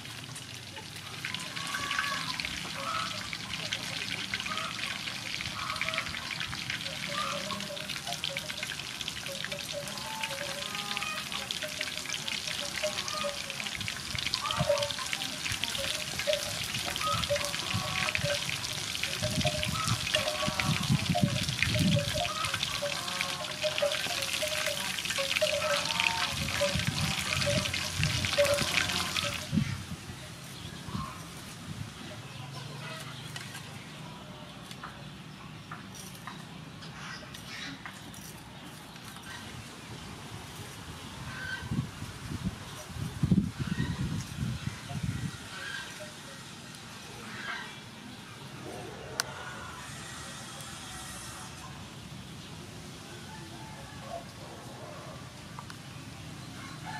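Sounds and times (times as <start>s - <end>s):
chicken deep-frying in oil: 0.0s - 30.3s.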